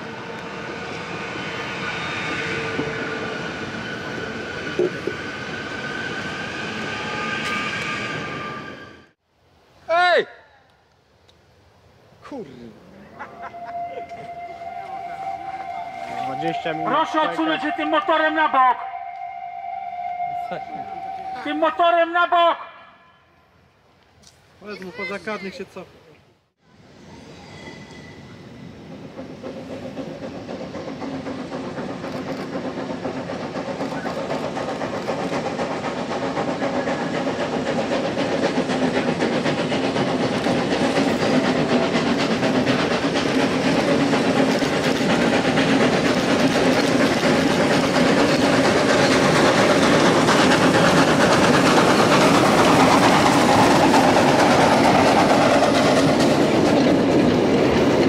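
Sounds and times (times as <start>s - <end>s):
steam train approaching: 0.0s - 10.2s, 11.5s - 25.8s, 26.5s - 58.0s
wheels clacking over rail joints: 28.8s - 58.0s.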